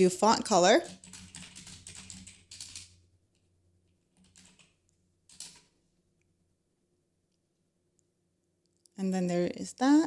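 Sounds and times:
typing on computer keyboard: 0.7s - 3.0s, 4.1s - 5.8s.

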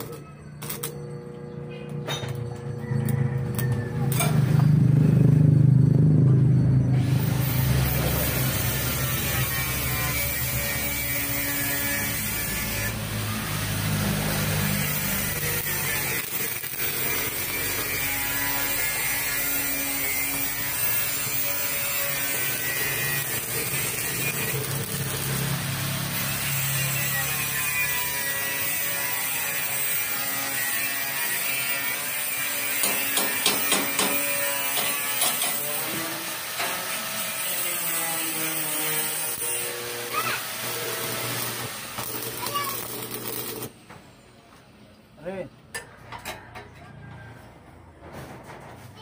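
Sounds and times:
welding arc crackling hiss: 12.0s - 27.0s, 37.6s - 43.7s
sharp metal knocks: 32.8s - 35.6s.

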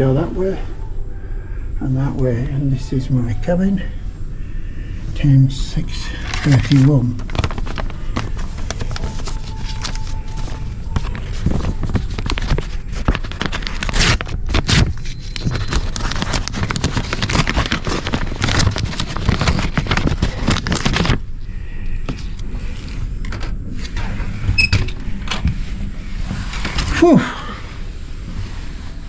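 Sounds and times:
paper envelope rustling: 5.7s - 24.4s, 25.0s - 27.7s.

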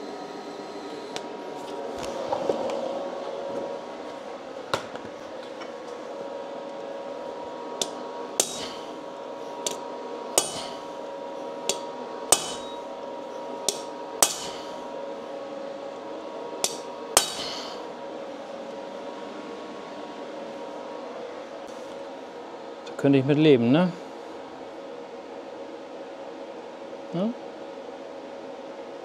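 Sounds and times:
steady hum: 0.0s - 29.0s
hammer striking rivet on anvil: 8.4s - 8.7s, 10.4s - 10.8s, 11.7s - 12.8s, 13.7s - 14.6s, 16.6s - 17.6s.

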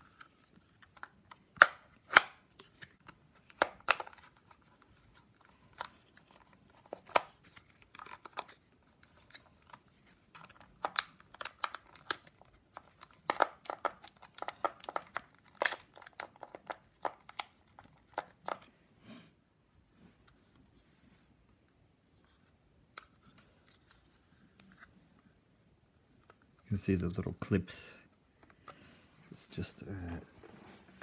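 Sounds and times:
plastic card scraping: 0.0s - 18.7s.

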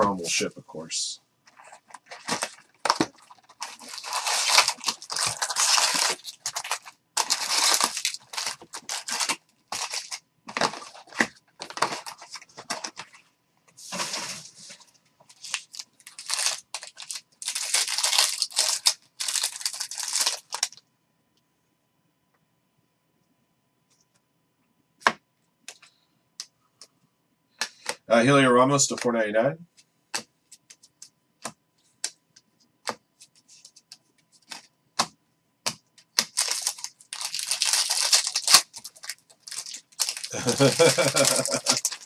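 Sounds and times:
foil wrappers crinkling: 1.5s - 13.2s, 13.9s - 20.8s, 36.1s - 42.0s
cardboard box tearing: 2.0s - 12.2s.

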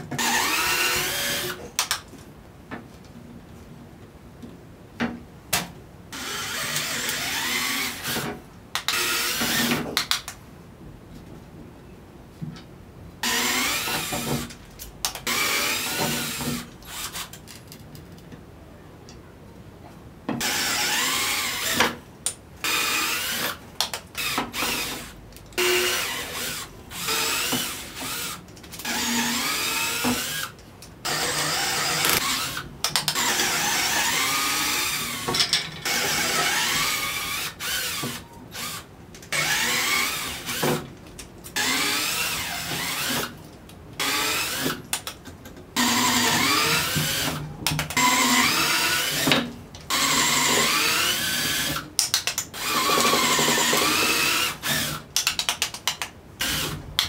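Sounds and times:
electric drill bursts: 0.2s - 1.6s, 6.2s - 8.2s, 13.2s - 14.2s, 20.4s - 21.8s, 24.2s - 32.6s, 33.2s - 35.3s, 35.9s - 40.6s, 41.6s - 43.2s, 45.8s - 47.4s, 48.0s - 49.3s, 49.9s - 51.8s, 52.6s - 55.0s.

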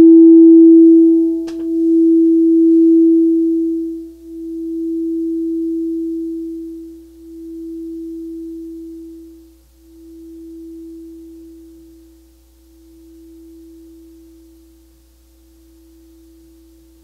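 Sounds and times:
singing bowl tone: 0.0s - 14.8s.

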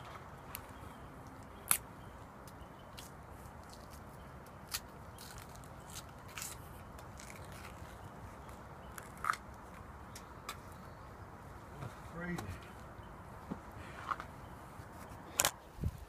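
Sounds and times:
faint outdoor hiss: 0.0s - 16.0s
banana peel tearing: 1.5s - 9.8s.

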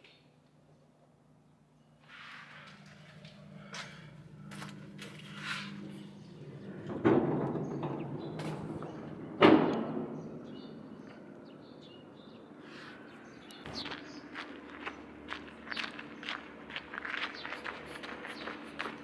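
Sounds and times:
footsteps on a walkway: 2.5s - 6.2s, 13.5s - 19.0s
metal door banging: 6.6s - 10.5s.

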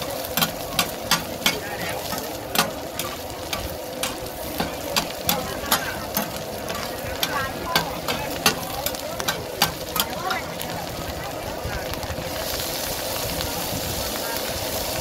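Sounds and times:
frying sizzle: 0.0s - 15.0s
metal spatulas clinking on pan: 0.2s - 10.5s.

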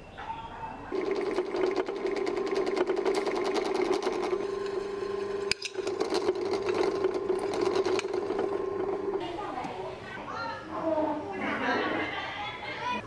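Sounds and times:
drill press cutting metal: 1.0s - 9.2s.

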